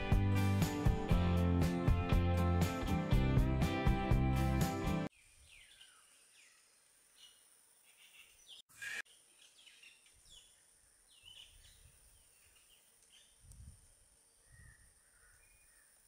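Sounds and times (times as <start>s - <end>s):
faint birdsong: 5.1s - 13.5s, 14.2s - 16.0s.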